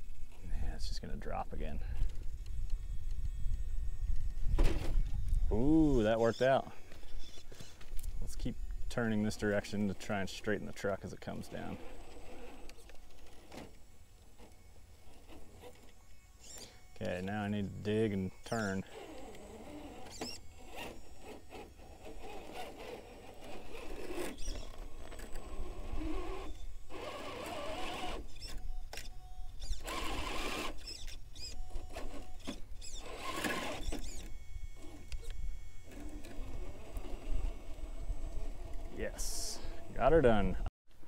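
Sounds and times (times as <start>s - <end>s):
electric motor whining: 0.0s - 40.6s
tyres scraping on rock: 14.4s - 28.5s.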